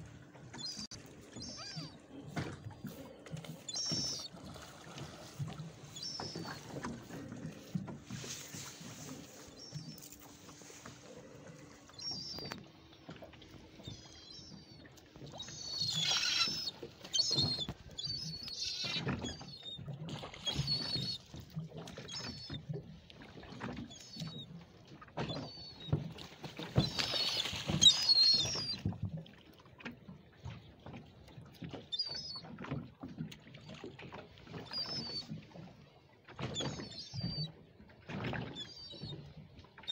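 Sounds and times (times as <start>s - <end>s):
water splashing around boat: 0.0s - 39.9s
gulls calling: 0.2s - 21.4s, 25.2s - 28.9s, 34.5s - 35.4s, 36.4s - 37.6s.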